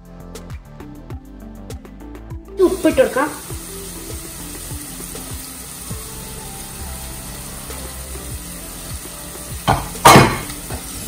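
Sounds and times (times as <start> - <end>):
onions sizzling in oil: 2.6 - 11.0.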